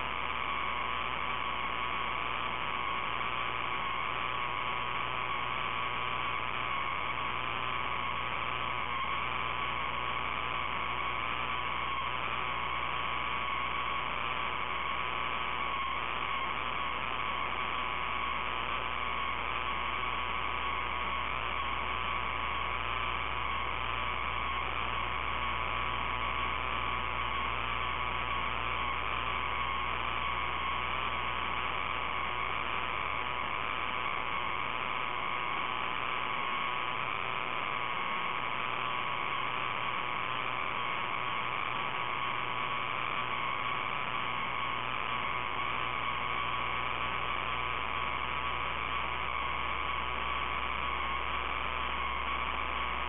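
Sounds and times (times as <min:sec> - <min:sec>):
low electrical hum: 0:00.0 - 0:53.0
thin whine: 0:00.0 - 0:53.0.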